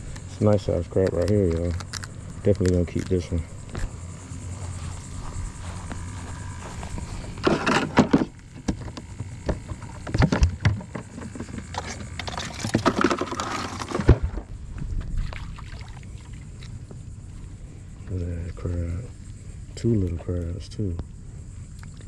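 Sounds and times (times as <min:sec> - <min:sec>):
plastic cooler opening: 0:07.4 - 0:14.5.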